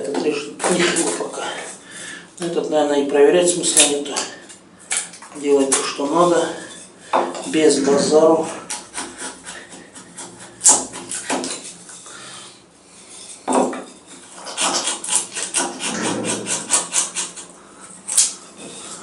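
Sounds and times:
knife carving wood: 8.5s - 11.8s, 13.5s - 19.0s.

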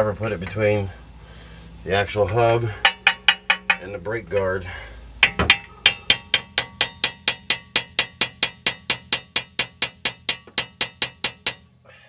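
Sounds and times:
hammer tapping metal screwdriver: 2.9s - 3.9s, 5.2s - 11.6s.

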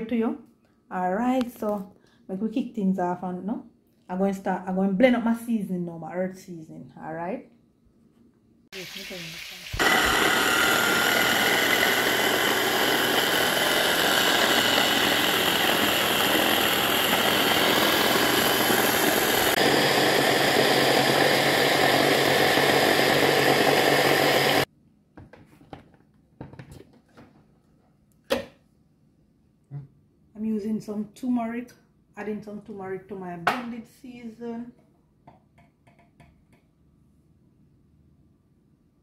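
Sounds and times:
electric food chopper running: 9.8s - 24.7s.

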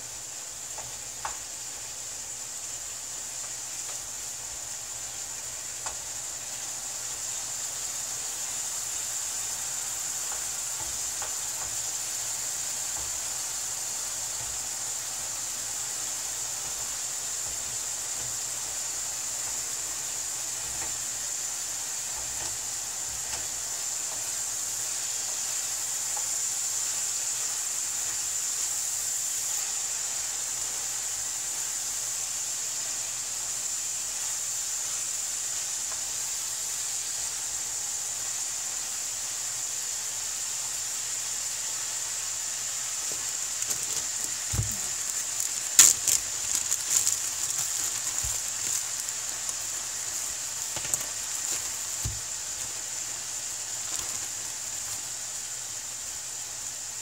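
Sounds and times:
meat sizzling in a frying pan: 0.0s - 57.0s
wooden spoon stirring: 43.1s - 55.4s.

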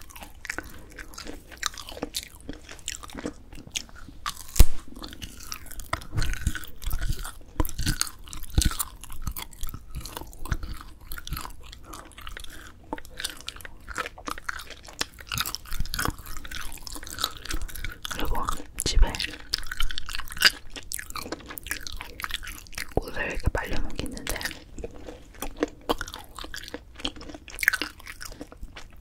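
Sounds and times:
close chewing with clicks: 0.0s - 29.0s
sharp bite: 4.3s - 7.2s.

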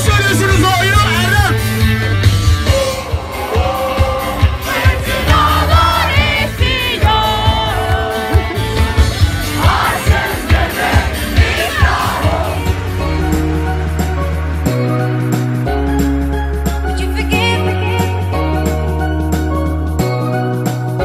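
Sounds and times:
bass line: 0.0s - 21.0s
drum beat: 1.8s - 15.6s.

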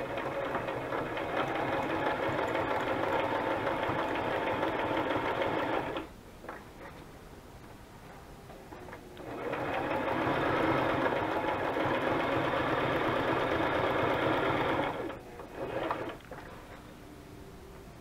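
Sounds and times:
sewing machine stitching: 0.0s - 6.1s, 9.2s - 16.3s.

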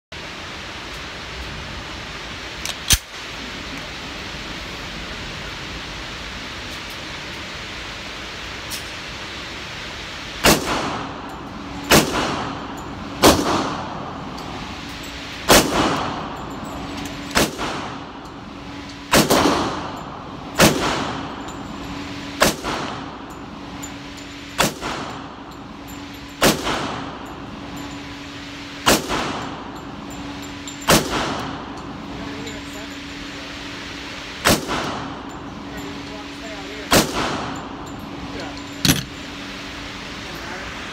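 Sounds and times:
low hum: 0.2s - 40.9s
pistol shots echoing indoors: 15.5s - 16.2s, 19.0s - 19.8s.

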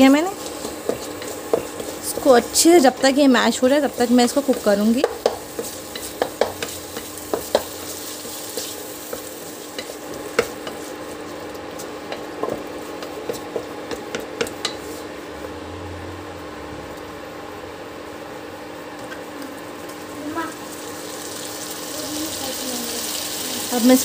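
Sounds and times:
tomatoes sizzling in oil: 0.0s - 15.1s, 19.5s - 24.0s
spatula scraping a pan: 0.1s - 13.5s.

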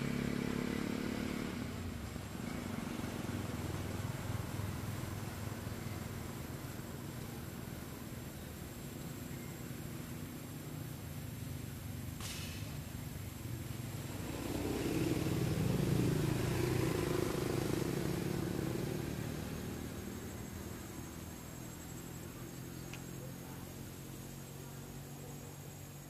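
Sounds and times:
vehicle engine passing: 0.0s - 5.6s, 11.3s - 26.0s.

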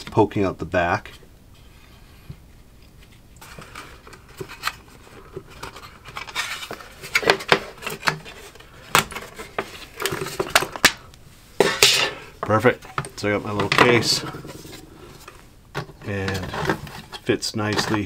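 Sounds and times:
sheet metal scraping and rattling: 12.8s - 15.4s.

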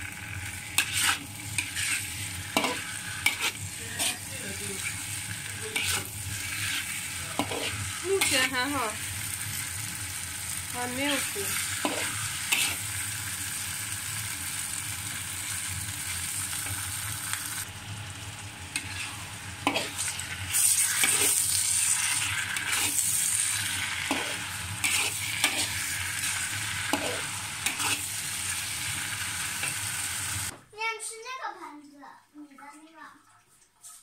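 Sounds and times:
food sizzling in a wok: 0.0s - 30.6s
utensil scraping wok: 0.3s - 14.2s, 18.7s - 30.5s.

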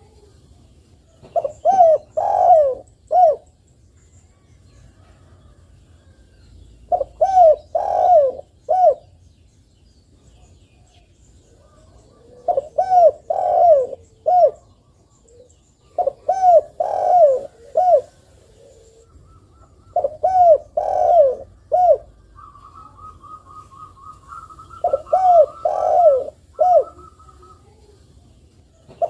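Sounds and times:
dove cooing: 1.2s - 3.5s, 6.8s - 9.1s, 11.5s - 28.0s.

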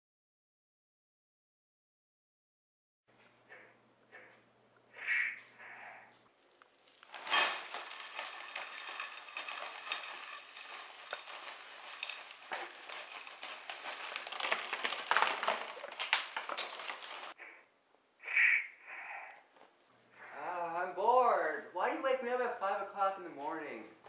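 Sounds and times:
plastic bag crinkling: 6.4s - 17.4s
food pieces rattling into pan: 6.8s - 17.4s.

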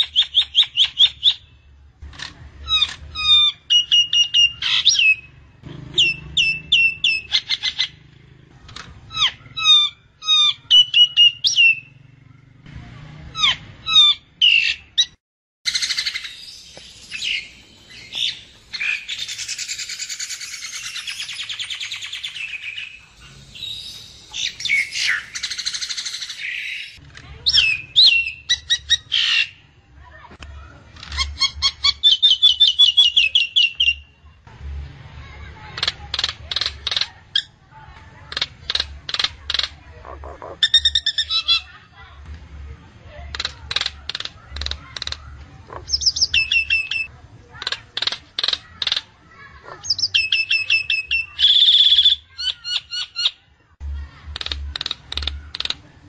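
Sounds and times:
myna calling: 38.2s - 41.8s, 43.3s - 53.3s.

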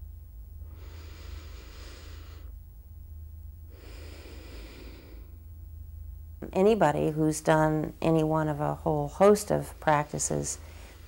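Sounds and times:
low steady hum: 0.0s - 11.0s
person breathing slowly: 0.6s - 2.6s, 3.7s - 5.4s.

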